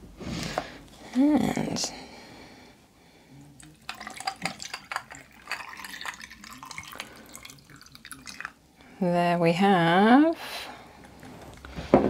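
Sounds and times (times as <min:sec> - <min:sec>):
liquid pouring over ice: 0:03.6 - 0:08.6
ice clicking: 0:03.8 - 0:08.6.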